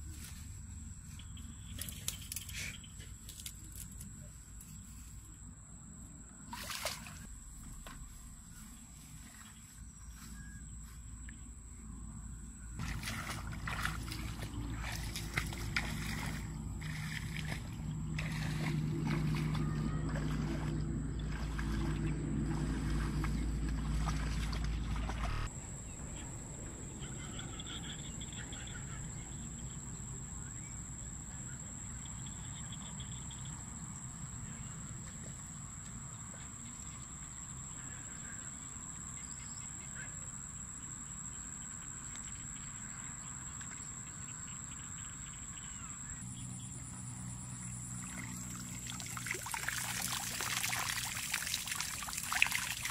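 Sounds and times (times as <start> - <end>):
water splashing from wading: 6.5 - 7.5, 12.8 - 25.5, 47.9 - 52.9
faint chirps: 6.8 - 17.5.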